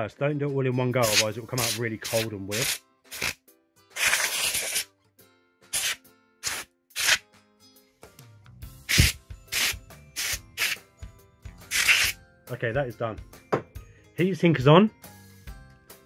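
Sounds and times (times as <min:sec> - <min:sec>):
compressed air spray hissing: 0:01.0 - 0:03.4, 0:05.7 - 0:07.2, 0:08.9 - 0:10.8, 0:11.7 - 0:12.2.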